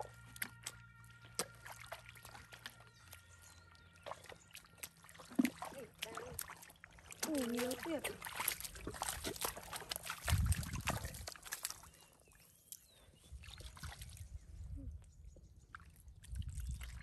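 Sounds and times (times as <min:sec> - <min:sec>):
water sloshing: 0:00.0 - 0:12.4
wet mud squelching: 0:00.0 - 0:14.3.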